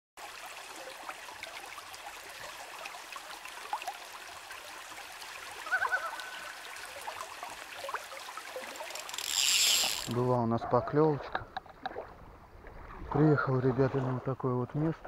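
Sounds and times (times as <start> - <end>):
water lapping at shore: 0.2 - 10.4, 11.0 - 15.0
bird warbling: 5.6 - 6.6.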